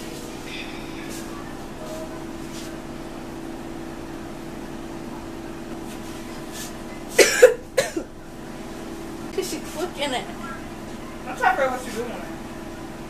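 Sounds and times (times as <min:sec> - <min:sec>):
low hum: 0:00.0 - 0:11.6
person coughing: 0:07.2 - 0:08.1.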